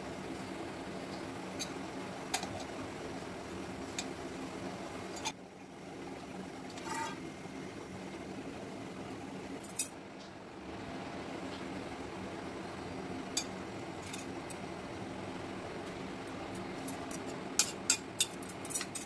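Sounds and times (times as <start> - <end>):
metallic ring: 6.8 - 7.2
steel kitchenware clicks and taps: 16.5 - 19.0.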